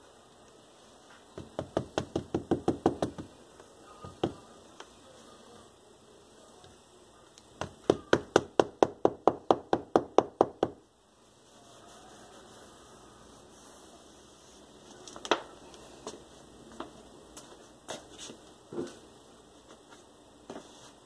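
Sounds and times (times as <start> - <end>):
hand tool tapping tacks: 1.4 - 3.3.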